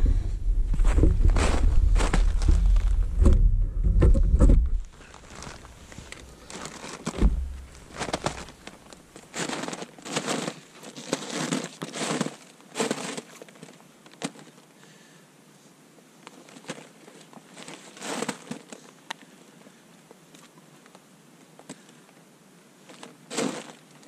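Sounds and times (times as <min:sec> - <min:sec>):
boots crunching in snow: 0:00.7 - 0:03.1, 0:04.9 - 0:13.5, 0:17.5 - 0:18.6, 0:23.0 - 0:23.8.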